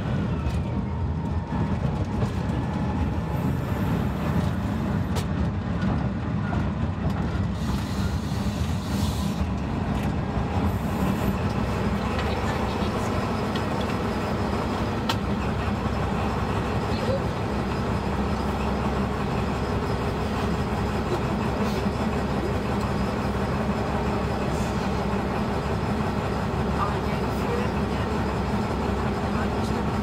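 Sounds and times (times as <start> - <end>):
diesel locomotive engine drone: 0.0 - 30.0
train rolling noise: 0.0 - 30.0.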